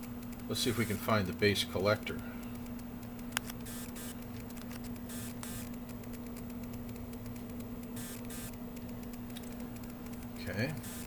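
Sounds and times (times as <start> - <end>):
steady low hum: 0.0 - 11.0
clip leads crackling and rustling: 2.5 - 7.6
sharp click: 2.6 - 11.0.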